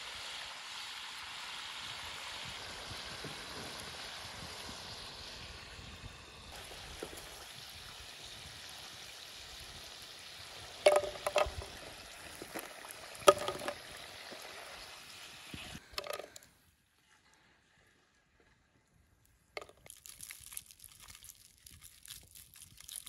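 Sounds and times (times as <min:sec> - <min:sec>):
fries sizzling in hot oil: 0:00.0 - 0:16.2
wooden spatula knocking on pan: 0:10.9 - 0:11.7, 0:13.3 - 0:13.8.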